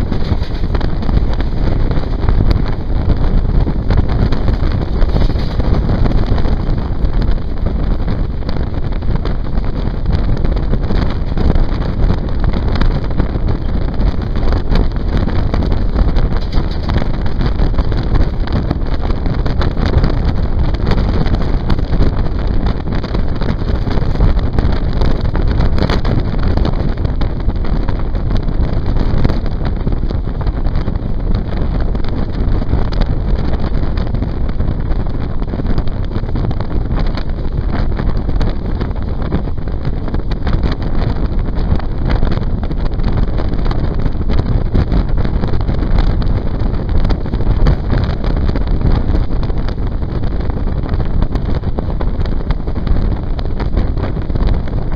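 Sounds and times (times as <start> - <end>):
train running noise: 0.0 - 3.1, 3.7 - 18.8
wind buffeting the microphone: 0.0 - 54.9.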